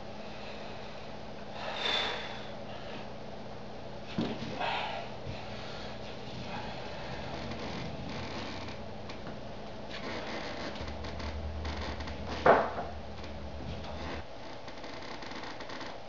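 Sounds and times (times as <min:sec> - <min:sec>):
person breathing hard: 0:00.1 - 0:03.2, 0:04.4 - 0:07.7.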